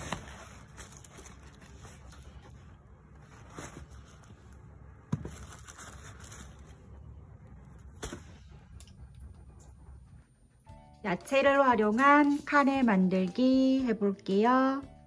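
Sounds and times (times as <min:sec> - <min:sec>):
hand rummaging in a cloth bag: 0:00.0 - 0:04.5.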